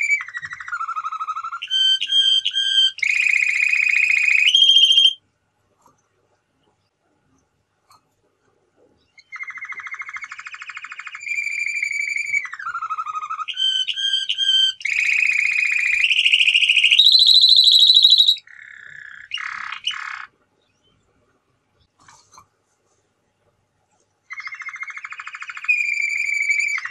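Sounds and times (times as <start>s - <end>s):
canary singing trills: 0.0s - 5.2s, 9.0s - 21.0s, 24.3s - 26.9s.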